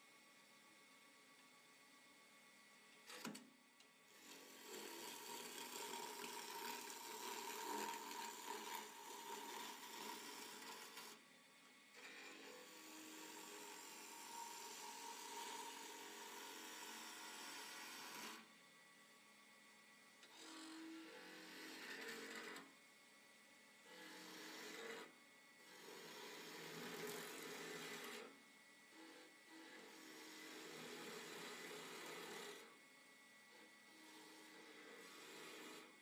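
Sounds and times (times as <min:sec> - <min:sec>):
faint motor whir: 0:00.0 - 0:36.0
lathe tool cutting hiss: 0:12.1 - 0:18.4, 0:25.7 - 0:28.2, 0:28.9 - 0:32.6, 0:33.9 - 0:35.8.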